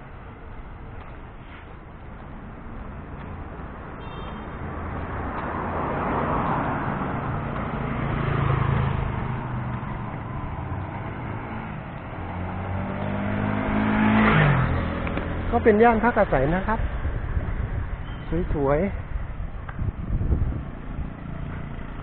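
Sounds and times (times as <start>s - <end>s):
vehicle passing by: 4.6s - 17.9s, 19.8s - 22.0s.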